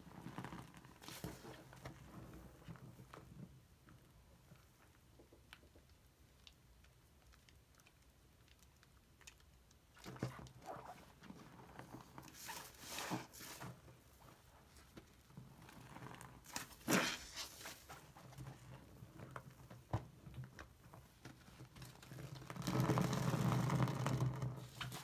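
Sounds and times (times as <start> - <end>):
wet slime squelches: 5.7 - 19.2.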